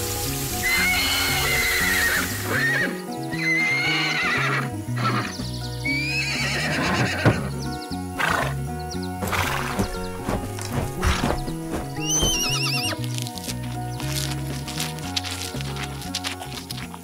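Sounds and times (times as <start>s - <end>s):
background music with bass: 0.0s - 17.0s
horse whinnying: 0.6s - 7.6s, 8.2s - 8.6s, 9.2s - 10.2s, 11.1s - 13.0s.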